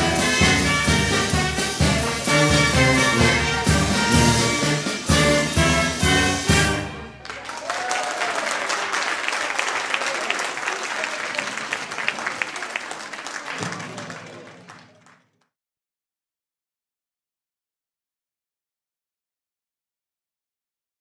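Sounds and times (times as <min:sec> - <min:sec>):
audience applauding: 0:07.0 - 0:15.5.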